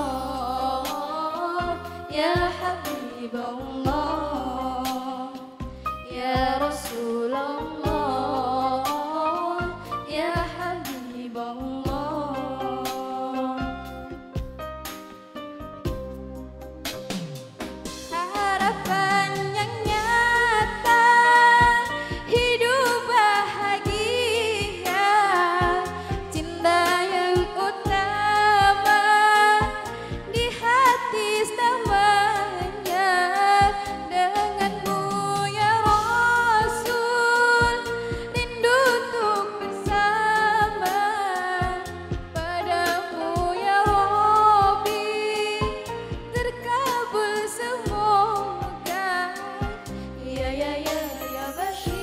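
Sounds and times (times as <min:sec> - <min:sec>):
woman singing: 0:00.0 - 0:14.3, 0:18.0 - 0:52.0
musical accompaniment: 0:00.0 - 0:52.0
drum beats: 0:00.9 - 0:04.1, 0:04.9 - 0:07.0, 0:08.9 - 0:11.1, 0:13.6 - 0:51.2, 0:51.8 - 0:52.0
deep drum hits: 0:14.4 - 0:14.7.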